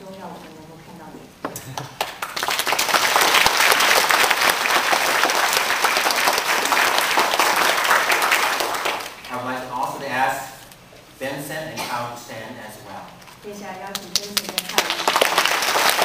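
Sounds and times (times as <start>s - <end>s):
congregation applauding: 1.7s - 9.3s, 14.1s - 16.0s.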